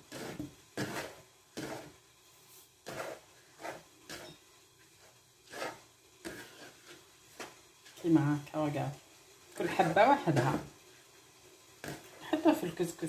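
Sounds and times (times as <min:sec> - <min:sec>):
hands raking grains in wooden bowl: 0:00.0 - 0:07.6.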